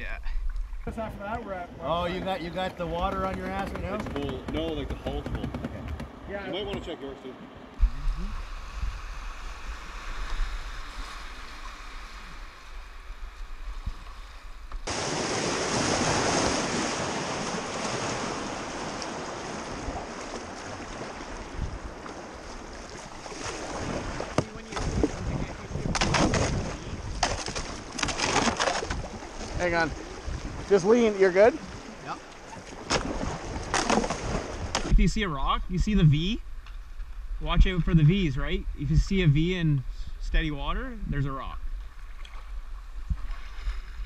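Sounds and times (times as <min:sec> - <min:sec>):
wind rumble on microphone: 0:00.8 - 0:14.8, 0:15.4 - 0:30.8, 0:40.9 - 0:44.0
paddle strokes splashing: 0:01.7 - 0:35.0, 0:41.8 - 0:44.0.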